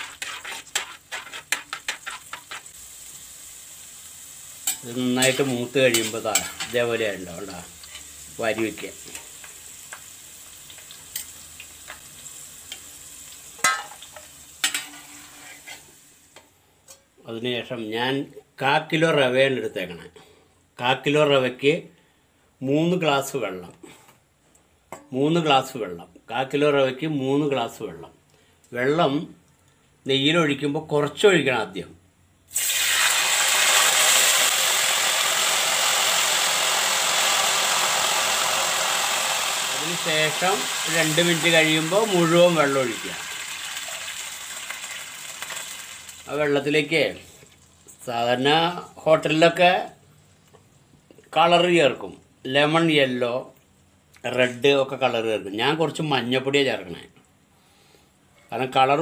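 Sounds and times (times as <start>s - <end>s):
metal ladle scraping a pan: 0.0s - 2.8s, 4.6s - 6.9s, 7.8s - 8.2s, 13.6s - 15.9s
nuts sizzling in hot ghee: 0.0s - 16.4s, 32.5s - 48.5s.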